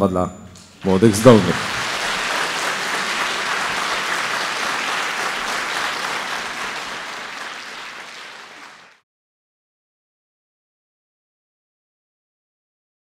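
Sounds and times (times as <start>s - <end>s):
audience applauding: 0.8s - 9.0s.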